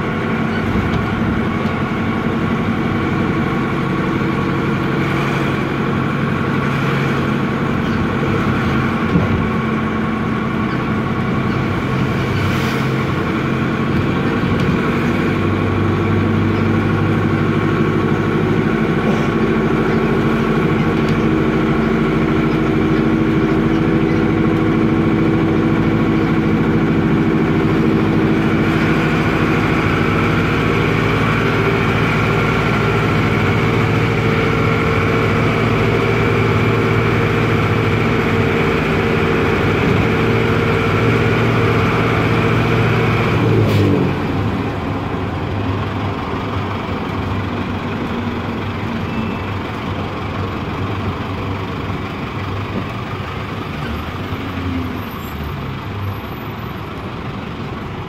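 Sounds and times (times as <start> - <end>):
bus diesel engine running: 0.0 - 58.0.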